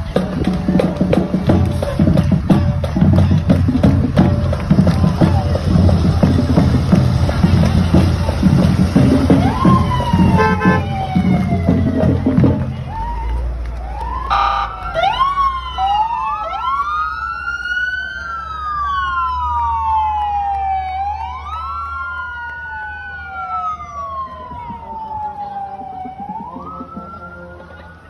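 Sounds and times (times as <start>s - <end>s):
police sirens wailing: 0.0s - 28.0s
short horn blast: 10.4s - 10.9s.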